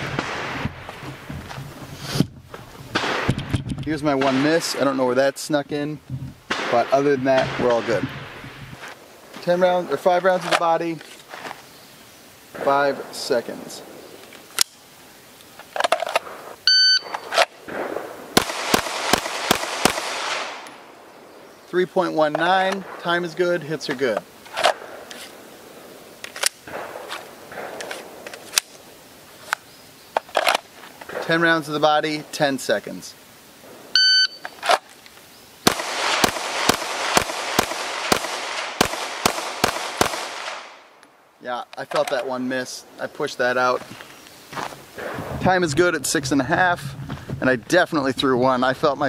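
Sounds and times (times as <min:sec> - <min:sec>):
pistol shots with echo: 0:06.5 - 0:08.1, 0:17.1 - 0:20.9, 0:26.6 - 0:28.2, 0:35.6 - 0:40.9
shot timer beep: 0:16.7 - 0:17.2, 0:34.0 - 0:34.4.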